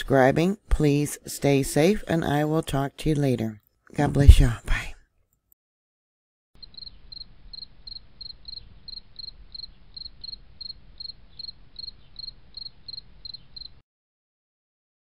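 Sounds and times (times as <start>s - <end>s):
cricket chirping: 6.6s - 13.8s.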